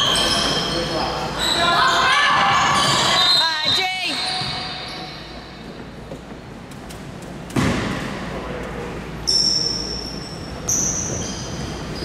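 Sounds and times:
shoe squeaks on court: 0.0 - 1.8, 2.6 - 5.7, 9.2 - 12.0.

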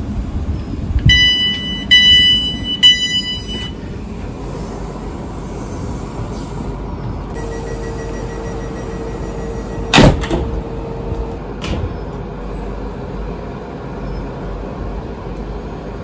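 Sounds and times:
stationary train noise: 0.0 - 16.0
high electronic beeps: 1.1 - 3.8, 7.4 - 10.0
steady low tone: 7.3 - 13.4.

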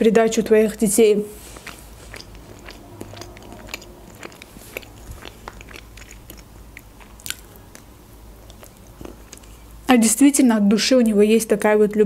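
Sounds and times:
chewing cake: 1.3 - 9.9
wet mouth clicks and smacks: 1.4 - 9.8.

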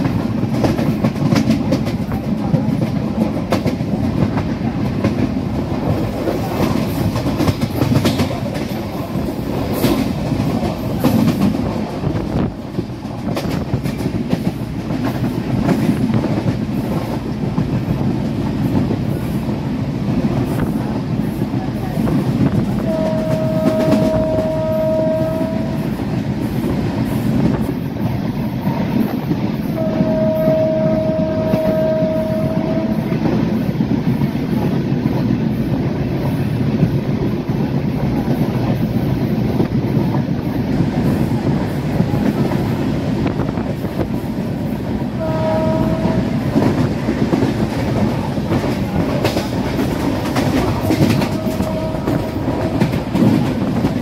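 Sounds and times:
train wheels rumbling: 0.0 - 54.0
train horn blasts: 22.8 - 26.1, 29.7 - 33.4, 45.2 - 46.9, 50.8 - 53.2.

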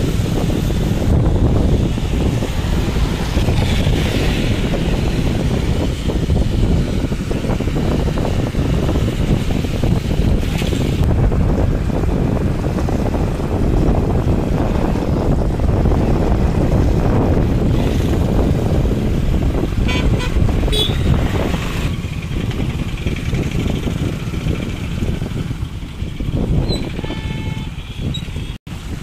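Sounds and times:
passing road traffic: 0.0 - 29.0
wind rumbling on microphone: 0.0 - 29.0
vehicle horn toot: 19.8 - 21.2, 26.6 - 28.6.

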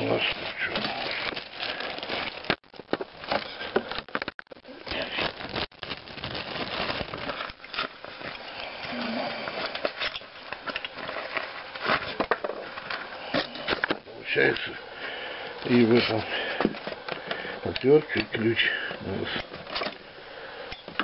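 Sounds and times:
plastic packaging crinkling: 0.0 - 8.5, 9.4 - 14.1.

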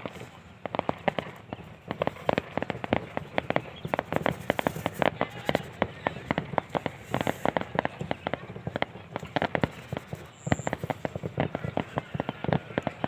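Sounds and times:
firecrackers banging: 0.0 - 13.0.

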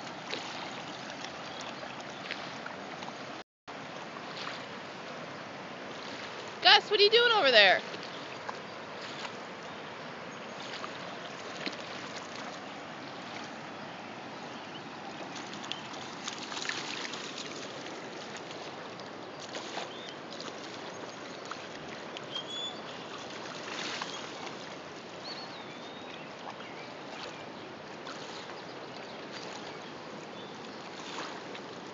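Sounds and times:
river water lapping: 0.0 - 31.9
dog splashing in water: 15.2 - 20.8, 22.7 - 24.6.

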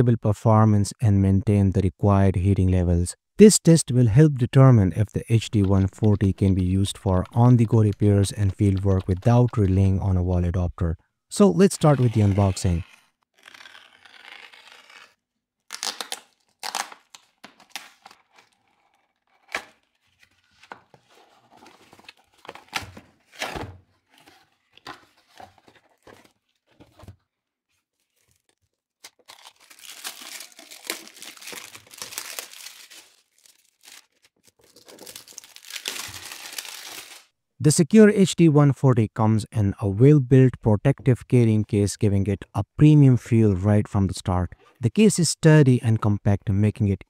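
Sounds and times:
tape and cardboard tearing: 11.7 - 20.8, 21.6 - 27.1, 28.1 - 37.3
blade slicing packing tape: 12.1 - 19.9, 29.0 - 37.3
plastic wrap crinkling: 27.8 - 37.3.

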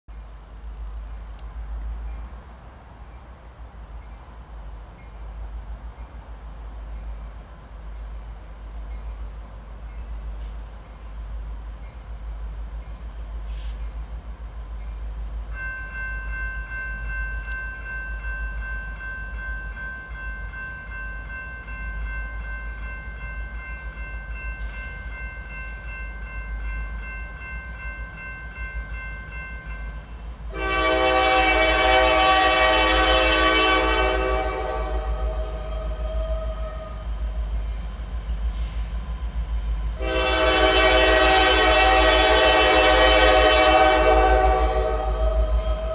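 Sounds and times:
low train rumble: 0.1 - 45.9
train air horn: 30.5 - 37.1, 40.0 - 45.9.

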